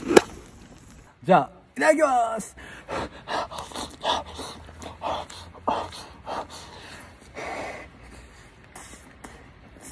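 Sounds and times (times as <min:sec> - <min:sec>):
breathy puffs of air: 0:02.6 - 0:09.9.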